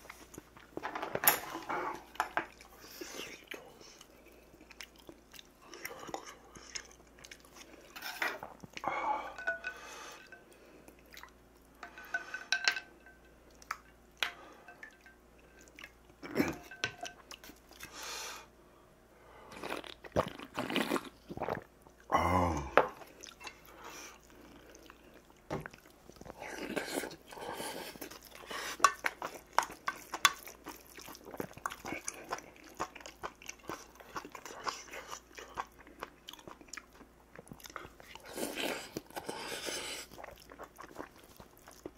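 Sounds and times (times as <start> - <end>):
chewing and crunching food: 0.0 - 12.5, 13.4 - 18.0, 19.5 - 22.1, 22.9 - 41.9.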